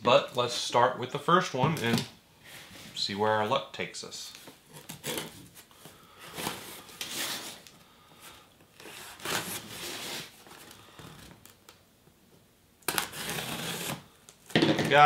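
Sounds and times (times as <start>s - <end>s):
packing tape being slit open: 8.7s - 11.7s, 12.8s - 14.6s.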